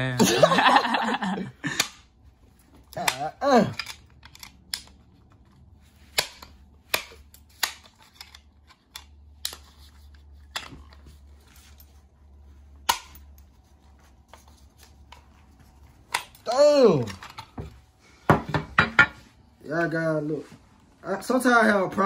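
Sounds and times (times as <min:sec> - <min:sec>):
metal gun parts clicking: 0:02.8 - 0:11.1.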